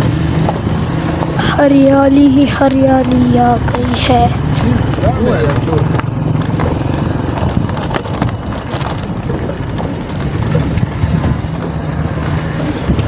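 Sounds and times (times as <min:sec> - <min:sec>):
tyres crunching on gravel: 0:00.0 - 0:13.0
vehicle engine rumbling: 0:00.0 - 0:13.0
wind on microphone: 0:03.4 - 0:13.0.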